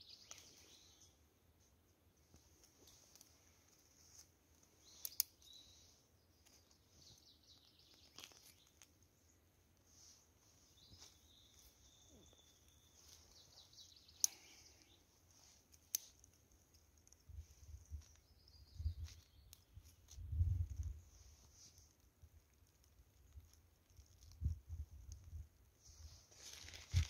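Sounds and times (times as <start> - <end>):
birds chirping: 0.0 - 1.3, 4.6 - 16.1, 17.1 - 19.9
fire kindling crackling: 0.2 - 27.0
sharp snaps: 4.2 - 5.7, 14.0 - 15.0.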